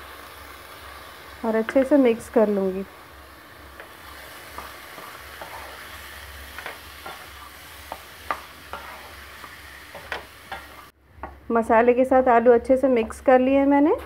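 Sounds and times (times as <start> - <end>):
oil sizzling: 0.0 - 11.7
spatula scraping potatoes in pan: 3.8 - 10.9.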